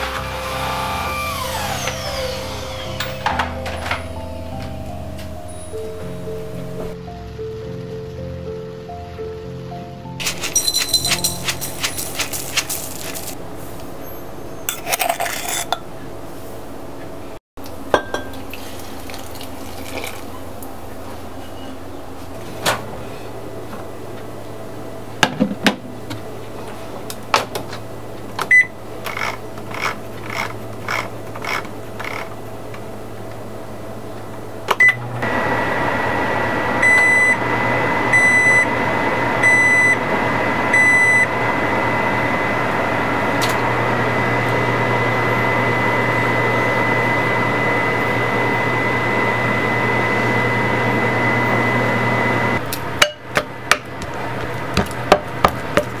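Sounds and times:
microwave oven humming: 0:17.6 - 0:56.0
microwave button beeps: 0:28.5 - 0:28.7, 0:34.8 - 0:35.0, 0:36.8 - 0:37.4, 0:38.1 - 0:38.7, 0:39.4 - 0:40.0, 0:40.7 - 0:41.3.

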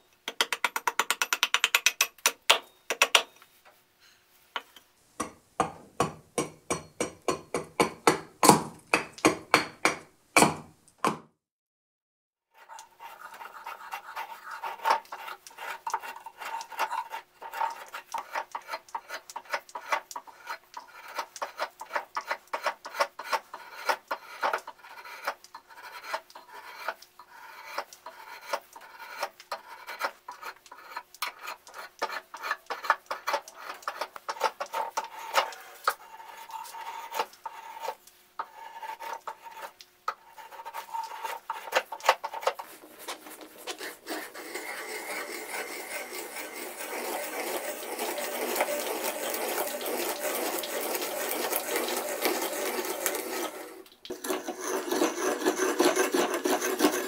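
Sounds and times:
drawknife scraping wood: 0:12.6 - 0:57.0.

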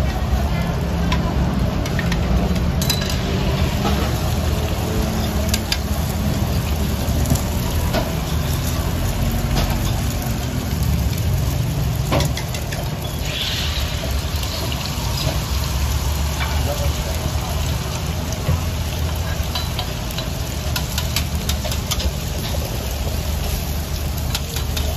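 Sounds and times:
kitchen equipment rumble: 0:00.0 - 0:15.6
utensils clattering: 0:02.8 - 0:03.3.

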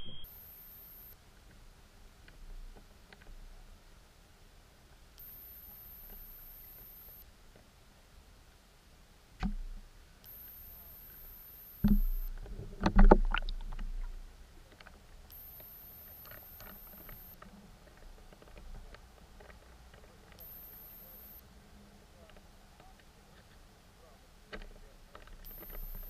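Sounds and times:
underwater knocks and clicks: 0:11.8 - 0:14.2.

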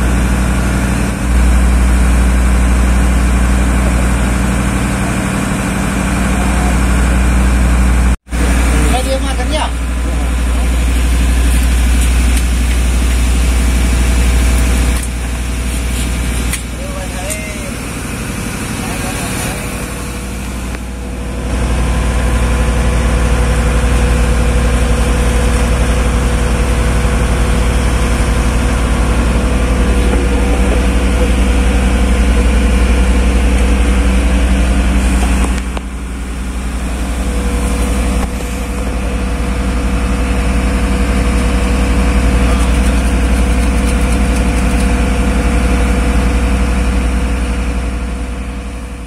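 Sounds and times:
boat engine droning: 0:00.0 - 0:49.0.

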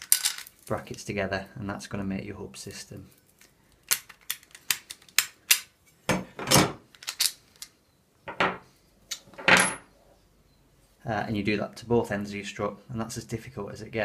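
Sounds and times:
metal brackets and bolts clinking: 0:08.3 - 0:09.9.

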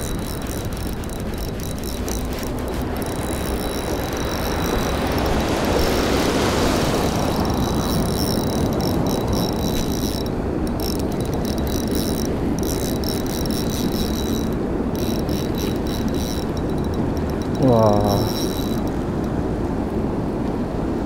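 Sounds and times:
river water rushing: 0:00.0 - 0:11.8.

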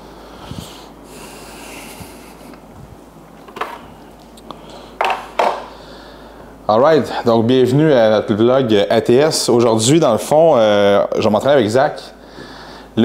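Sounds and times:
room noise: 0:00.0 - 0:13.0
person sniffing: 0:00.4 - 0:02.6
man handling kitchen scale: 0:03.4 - 0:03.9, 0:05.0 - 0:05.7.

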